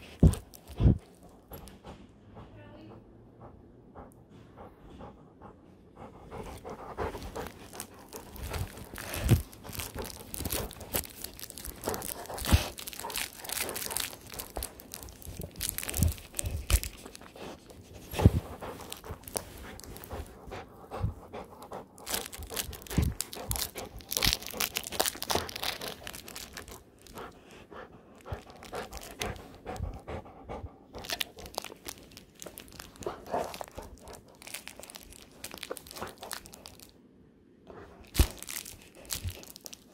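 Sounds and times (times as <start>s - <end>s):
puppy chewing a toy: 0.0s - 2.9s, 4.0s - 37.0s, 37.7s - 39.9s
puppy panting: 0.0s - 35.0s
fabric rustling and crunching: 7.2s - 20.3s, 22.0s - 27.1s, 31.0s - 36.9s, 38.0s - 39.9s.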